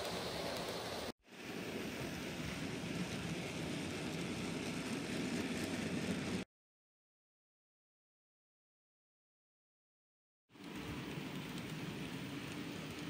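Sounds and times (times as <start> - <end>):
model train running on track: 0.0 - 6.4, 10.6 - 13.0.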